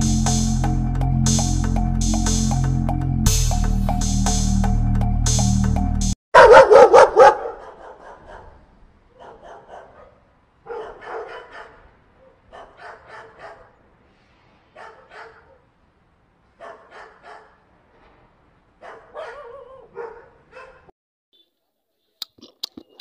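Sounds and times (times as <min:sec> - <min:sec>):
dog barking: 0:06.4 - 0:13.8, 0:14.7 - 0:15.7, 0:16.6 - 0:17.7, 0:18.8 - 0:20.9.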